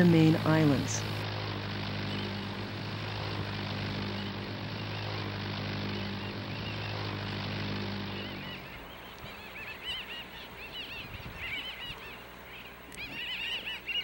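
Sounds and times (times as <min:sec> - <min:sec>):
propeller airplane engines droning: 0:00.0 - 0:14.0.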